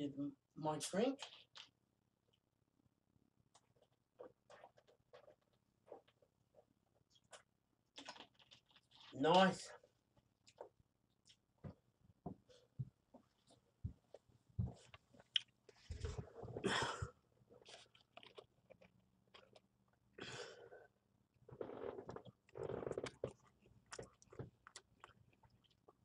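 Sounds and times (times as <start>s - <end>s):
man chewing: 3.5s - 9.1s, 10.2s - 11.6s, 12.6s - 16.5s, 17.5s - 20.9s, 21.6s - 26.0s.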